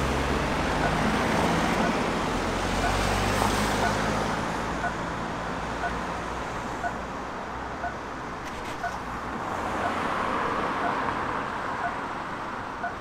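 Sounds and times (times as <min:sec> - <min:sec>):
steady road traffic: 0:00.0 - 0:13.0
pedestrian crossing signal beeps: 0:00.6 - 0:05.2, 0:05.8 - 0:06.1, 0:06.8 - 0:07.0, 0:07.8 - 0:08.0, 0:08.8 - 0:09.0, 0:10.8 - 0:11.0, 0:11.8 - 0:12.0, 0:12.8 - 0:13.0.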